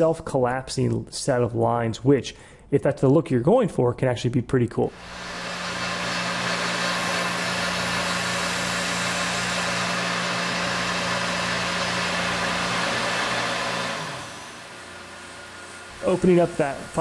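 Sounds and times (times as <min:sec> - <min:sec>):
milling machine cutting metal: 0:04.9 - 0:17.0.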